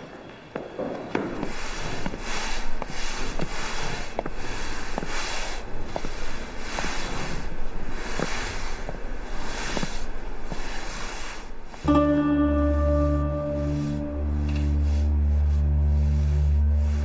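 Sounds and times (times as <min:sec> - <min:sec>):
broom sweeping concrete floor: 0:01.2 - 0:17.0
ringing musical tone: 0:11.9 - 0:15.4.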